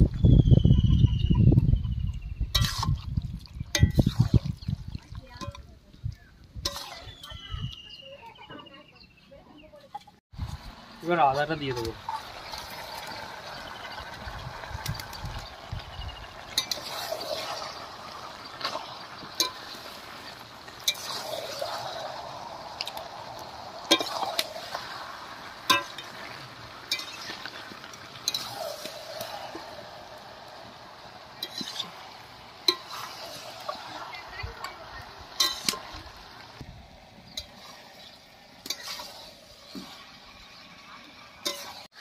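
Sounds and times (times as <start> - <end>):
soft wet scraping: 16.4 - 40.7.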